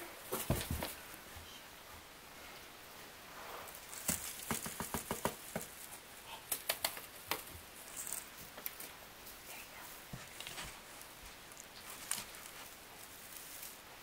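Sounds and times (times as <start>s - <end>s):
kitten playing clicks and taps: 4.0s - 5.8s, 6.4s - 8.9s.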